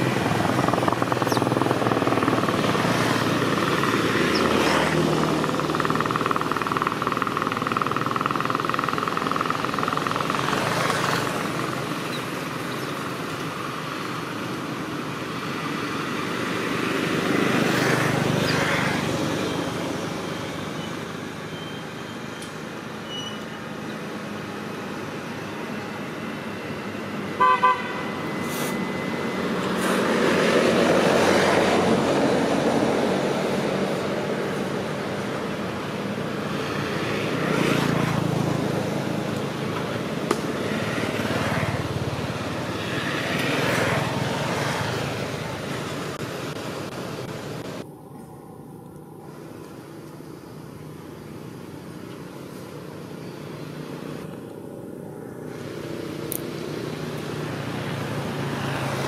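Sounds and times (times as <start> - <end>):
traffic passing: 0.0 - 59.0
vehicle horn toots: 27.4 - 28.2.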